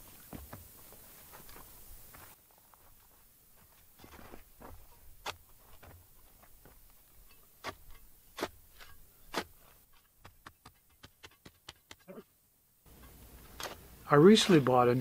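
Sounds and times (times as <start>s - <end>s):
shovel chopping into hard soil: 7.6s - 12.1s, 13.5s - 14.7s.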